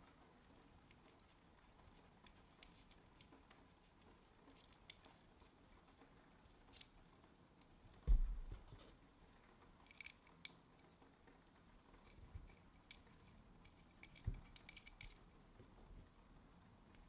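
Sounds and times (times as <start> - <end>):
small parts clicking: 0.8 - 5.5, 9.8 - 10.6, 12.0 - 15.3
dull thump: 8.0 - 8.7.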